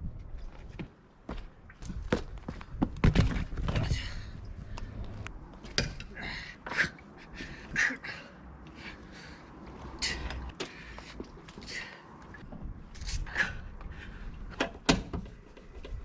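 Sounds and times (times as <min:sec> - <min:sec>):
strained breathing: 0:06.1 - 0:12.4.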